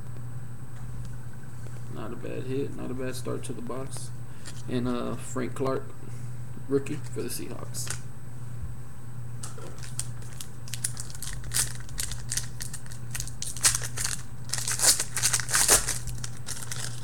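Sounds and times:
steady low hum: 0.0 - 17.0
foil wrapper crinkling and tearing: 9.4 - 17.0.

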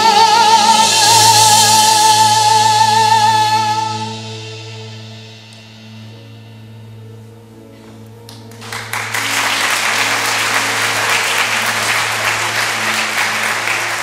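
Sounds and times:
soft instrumental music: 0.0 - 14.0
audience applause: 8.4 - 14.0.

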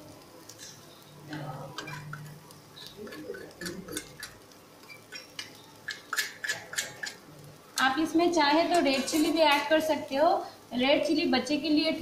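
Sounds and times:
metal spoon clinking on steel bowl: 5.1 - 7.2, 8.7 - 9.7.

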